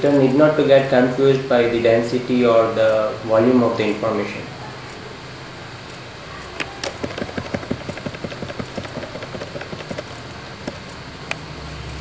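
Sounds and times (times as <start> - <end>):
mouse scroll wheel clicking: 6.6 - 10.9.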